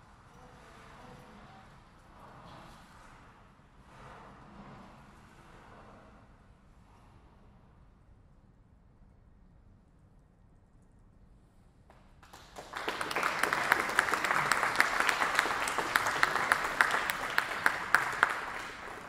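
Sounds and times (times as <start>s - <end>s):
audience applauding: 12.2s - 19.0s.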